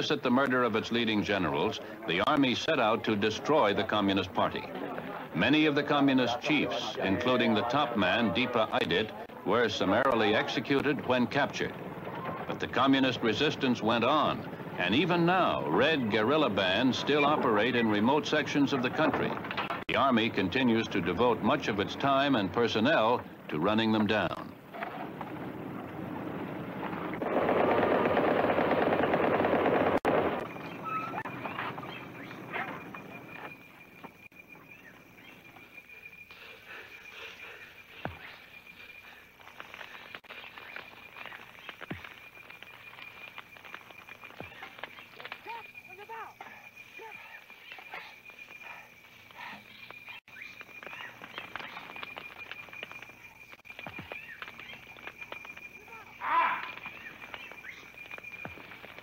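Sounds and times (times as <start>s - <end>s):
clicks and rustles: 18.3s - 20.0s, 38.0s - 45.8s, 47.4s - 59.0s
rapid automatic gunfire: 26.9s - 30.4s.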